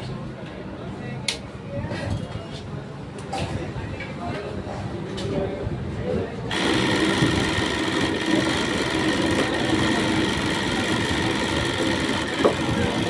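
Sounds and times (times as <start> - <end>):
sewing machine running: 6.5 - 13.0.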